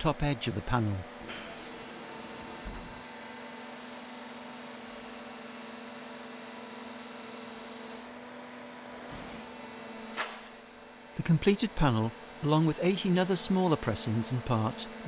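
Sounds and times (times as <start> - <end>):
sheet-metal press humming: 1.1 - 5.4.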